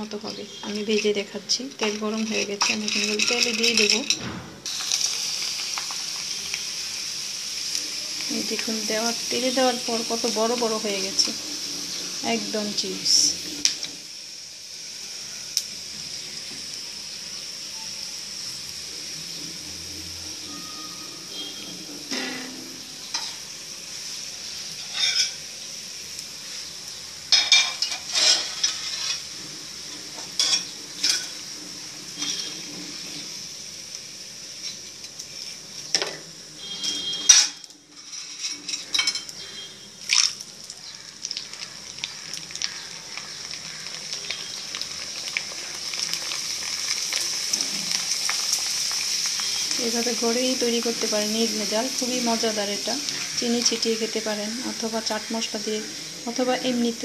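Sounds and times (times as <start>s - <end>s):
chips sizzling in hot oil: 0.0s - 57.0s
spoon scraping and clinking on pan: 1.8s - 4.2s, 24.8s - 25.4s, 27.3s - 29.3s, 30.4s - 31.4s, 32.2s - 32.6s.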